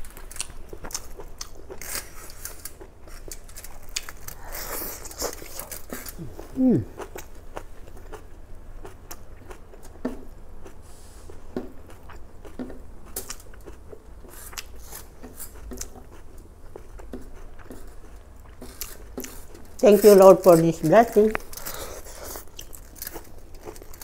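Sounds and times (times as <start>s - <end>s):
person chewing noodles: 0.0s - 24.0s.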